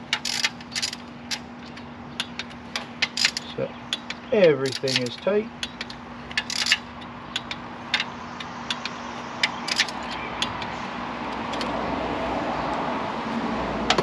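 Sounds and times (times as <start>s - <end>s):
steady background noise: 0.0s - 14.0s
metal tools clinking on hardware: 1.7s - 6.8s.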